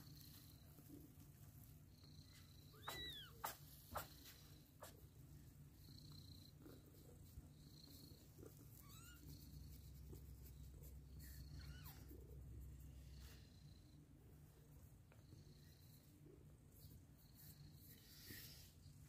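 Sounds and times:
cat purring: 0.0 - 19.0
kittens squeaking: 2.6 - 5.0, 8.8 - 9.5, 11.2 - 12.2.

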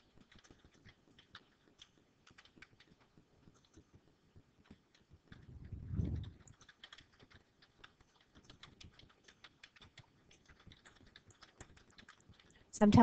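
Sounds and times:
faint computer keyboard typing: 0.0 - 13.0.

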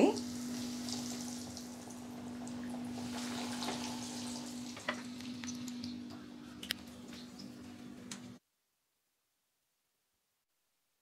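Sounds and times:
food deep-frying in oil: 0.0 - 6.1.

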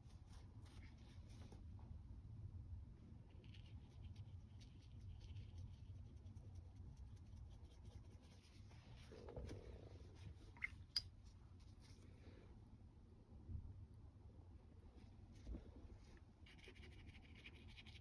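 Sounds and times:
low steady hum: 0.0 - 18.0
brush scratching on paper: 3.4 - 9.2, 16.4 - 18.0.

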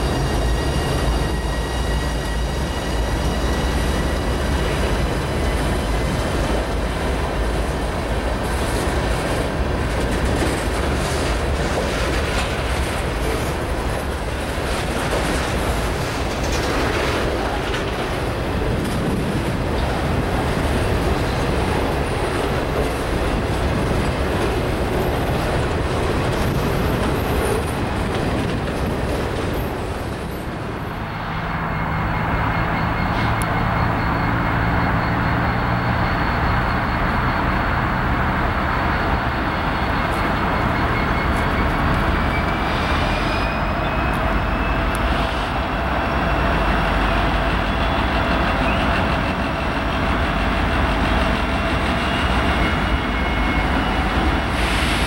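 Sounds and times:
train wheels rumbling on rail: 0.0 - 55.0
wheels clickety-clack: 3.7 - 31.0, 46.3 - 55.0.

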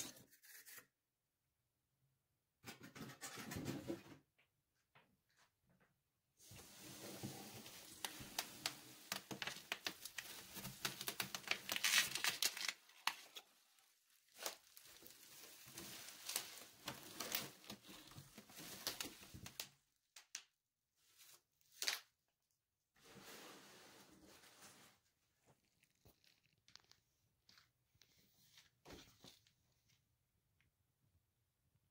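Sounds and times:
plastic packaging crinkling: 7.5 - 19.7, 25.5 - 27.6.

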